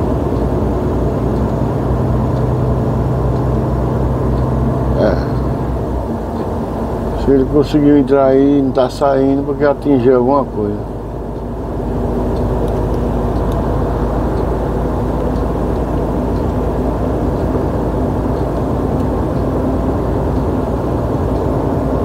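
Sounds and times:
truck engine and road noise: 0:00.0 - 0:22.0.

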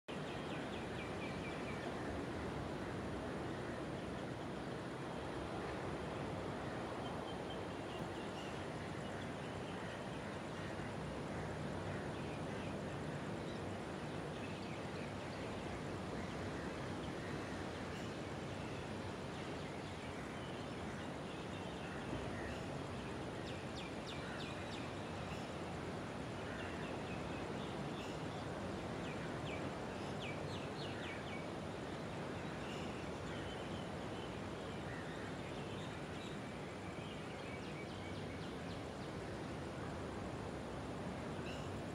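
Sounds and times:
steady hiss: 0:00.1 - 0:41.9.

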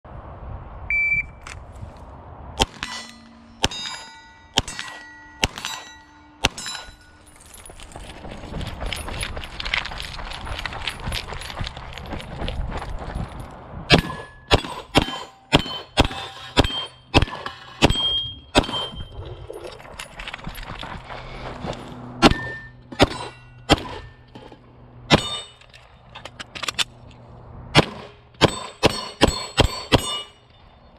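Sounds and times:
shot timer beep: 0:00.9 - 0:01.4
steel targets ringing: 0:02.6 - 0:08.0, 0:13.9 - 0:19.2, 0:22.2 - 0:25.8, 0:27.8 - 0:30.9
pistol shots: 0:04.6 - 0:06.7, 0:13.9 - 0:18.9, 0:27.8 - 0:30.2
shuffling and movement noise: 0:07.2 - 0:13.6, 0:19.1 - 0:22.2.

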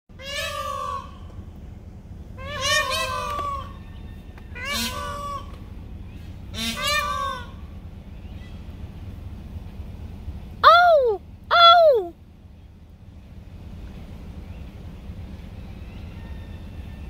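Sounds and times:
peacock calls: 0:00.1 - 0:09.0, 0:10.6 - 0:12.2, 0:14.3 - 0:17.0.

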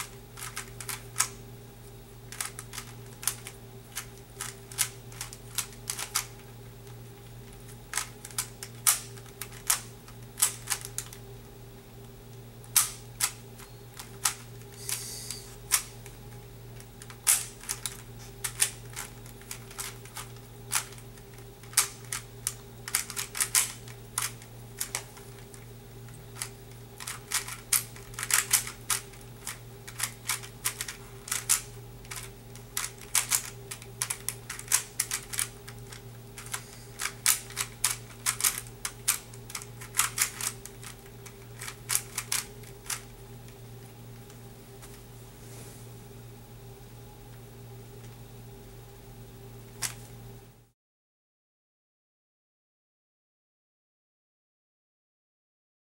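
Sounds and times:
puzzle cube plastic clicks: 0:00.0 - 0:01.4, 0:02.3 - 0:06.4, 0:07.6 - 0:11.2, 0:12.7 - 0:13.4, 0:17.0 - 0:25.7, 0:26.3 - 0:43.1.

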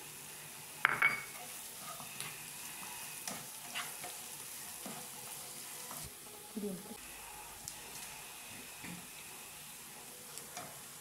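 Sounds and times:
vegetables sizzling in hot oil: 0:00.0 - 0:11.0
spatula scraping pan: 0:01.3 - 0:06.1.

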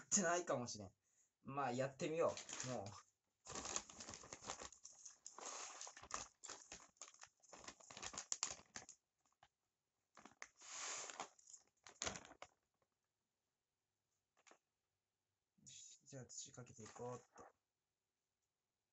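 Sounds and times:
plastic bag crinkling: 0:02.2 - 0:09.5, 0:10.2 - 0:12.6
soil pouring and rustling: 0:02.4 - 0:08.9, 0:10.2 - 0:12.5.

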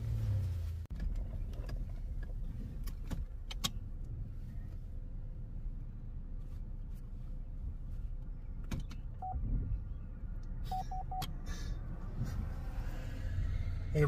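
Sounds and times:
car engine rumble: 0:00.0 - 0:14.0
electronic beeps: 0:09.2 - 0:09.4.

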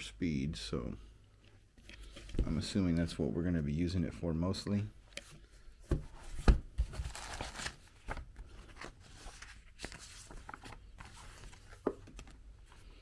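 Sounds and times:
paper sliding rustle: 0:06.1 - 0:13.0.

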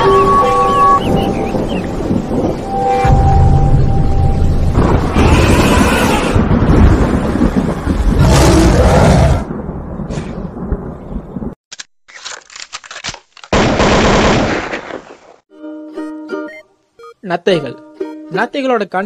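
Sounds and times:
loud rumbling noise: 0:03.1 - 0:09.9
sharp cracks: 0:11.7 - 0:15.4
plucked-string music: 0:15.5 - 0:16.8, 0:17.5 - 0:18.5.

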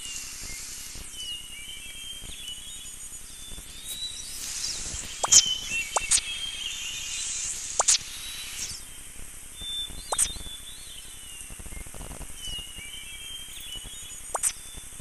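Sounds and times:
whistle-like sweeps: 0:00.0 - 0:02.4, 0:03.7 - 0:09.0
birds chirping: 0:00.0 - 0:10.9
steady high hiss: 0:00.0 - 0:15.0.

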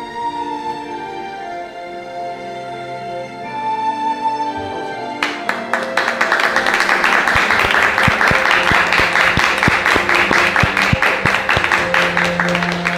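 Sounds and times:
quiet music: 0:00.0 - 0:12.9
applause: 0:05.2 - 0:12.9.

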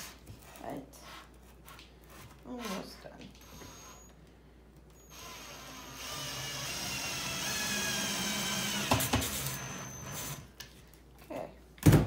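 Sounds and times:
cordless drill driving a screw: 0:03.4 - 0:04.1, 0:05.0 - 0:10.5.

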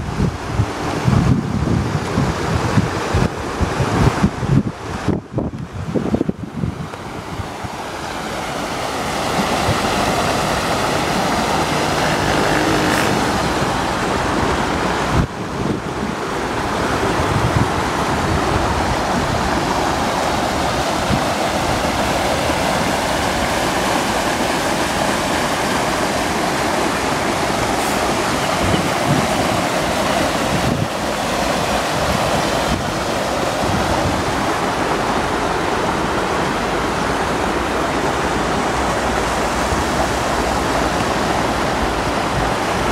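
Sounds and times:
floodwater rushing over stones: 0:00.0 - 0:42.9.

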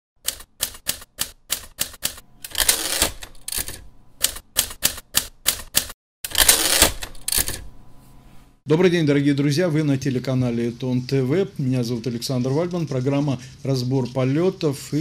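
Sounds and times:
typewriter keys striking: 0:00.2 - 0:07.7
typewriter carriage return rattling: 0:00.3 - 0:07.7.

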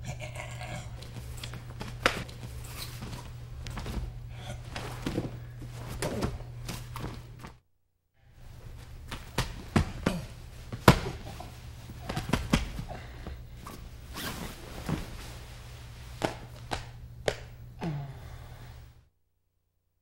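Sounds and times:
low tape hum: 0:00.0 - 0:07.6, 0:08.2 - 0:19.0
cloth rustling: 0:08.4 - 0:16.5.

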